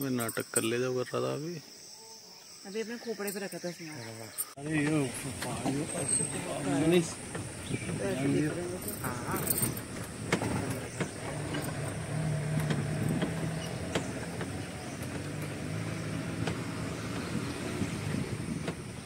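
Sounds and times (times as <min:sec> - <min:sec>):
vehicle engine running: 0:04.6 - 0:19.0
knocks and rattles from bumps: 0:04.7 - 0:19.0.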